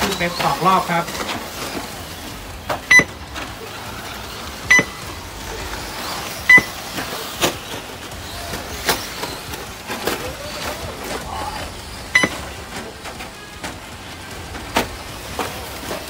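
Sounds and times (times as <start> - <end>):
radio-controlled cars whirring: 0.0 - 16.0
high electronic beeps: 2.9 - 3.2, 4.6 - 5.1, 6.4 - 6.8, 12.1 - 12.5.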